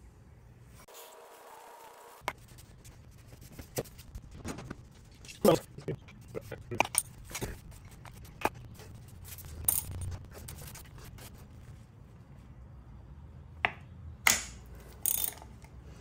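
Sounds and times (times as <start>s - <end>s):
ratchet clicks and knocks: 14.3s - 15.6s.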